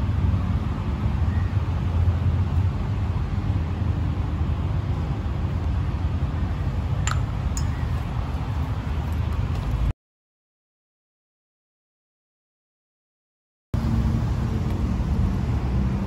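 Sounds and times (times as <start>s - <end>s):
vehicle rumble: 0.0s - 9.9s, 13.8s - 16.0s.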